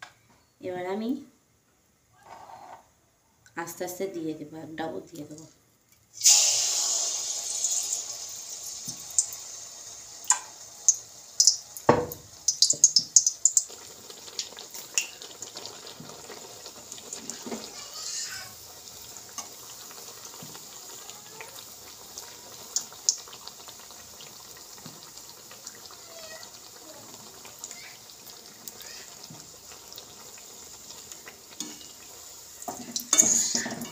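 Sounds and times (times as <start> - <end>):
oil crackling and popping: 6.0 - 33.9
batter sizzling in hot oil: 6.1 - 33.9
knock on pan: 11.9 - 12.8.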